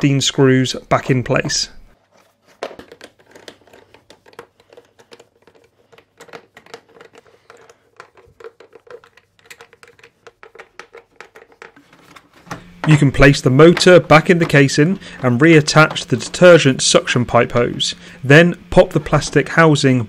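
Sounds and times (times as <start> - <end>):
screwdriver clicking and scraping: 2.8 - 13.0.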